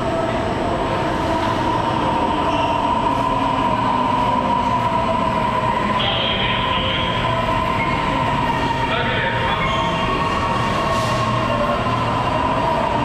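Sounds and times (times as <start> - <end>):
subway train running: 0.0 - 13.0
high brake squeal: 9.5 - 10.2.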